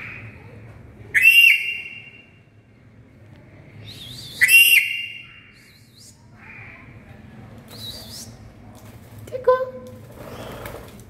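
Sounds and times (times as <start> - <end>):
parrot high-pitched calls: 1.1 - 2.2, 4.3 - 5.8.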